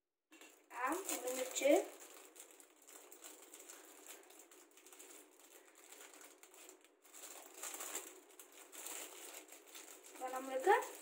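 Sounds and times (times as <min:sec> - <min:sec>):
plastic wrapper crinkling: 0:00.4 - 0:11.0.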